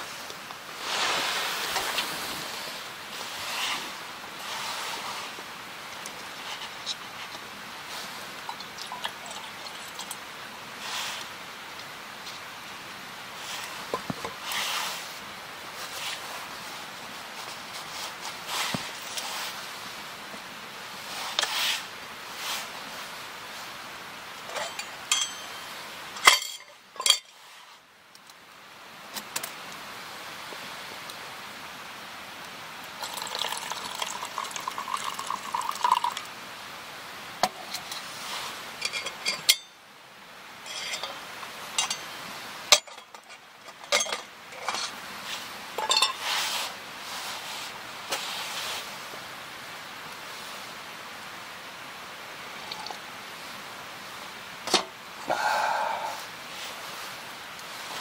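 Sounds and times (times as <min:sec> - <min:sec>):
liquid pouring into mug: 0:08.5 - 0:10.2, 0:33.0 - 0:36.3
cookware clinking: 0:24.5 - 0:27.3, 0:38.8 - 0:39.8, 0:40.6 - 0:41.2, 0:41.8 - 0:42.1, 0:45.8 - 0:46.2.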